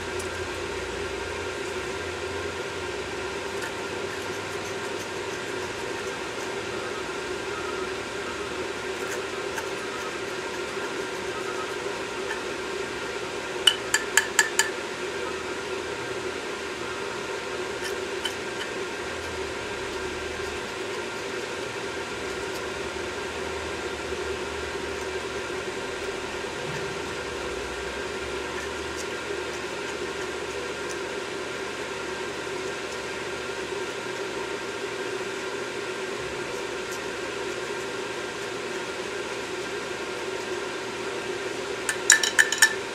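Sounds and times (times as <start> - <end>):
steady background hum: 0.0 - 42.9.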